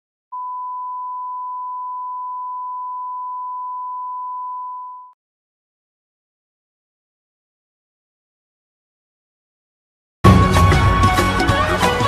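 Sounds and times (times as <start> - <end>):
long electronic beep: 0.3 - 5.2.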